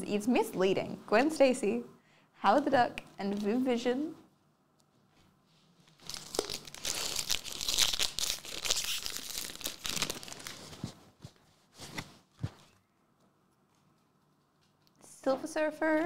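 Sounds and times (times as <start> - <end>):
foil wrapper crinkling and tearing: 6.0 - 10.9.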